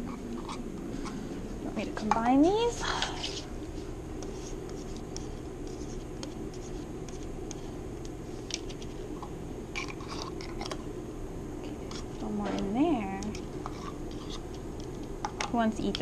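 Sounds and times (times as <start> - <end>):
low steady hum: 0.0 - 16.0
fork scraping on paper plate: 13.6 - 14.4.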